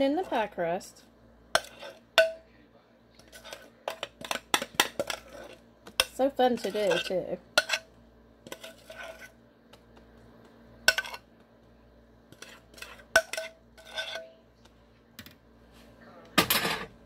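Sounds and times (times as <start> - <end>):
spoon scraping glass bowl: 1.6 - 2.0, 3.2 - 9.4, 10.9 - 11.2, 12.3 - 14.4.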